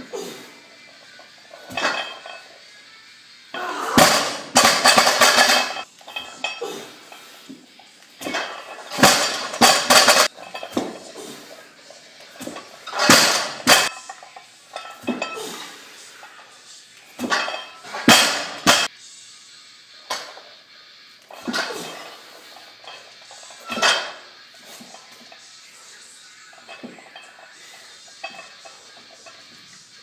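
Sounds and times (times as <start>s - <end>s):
plates and bar clanking: 1.6s - 2.5s, 4.0s - 6.7s, 8.2s - 11.2s, 12.4s - 15.6s, 17.2s - 18.9s, 21.3s - 25.5s, 26.4s - 29.8s
barbell dropping on concrete: 4.0s - 6.4s, 8.2s - 11.0s, 12.4s - 14.0s, 17.2s - 18.9s, 23.7s - 24.2s.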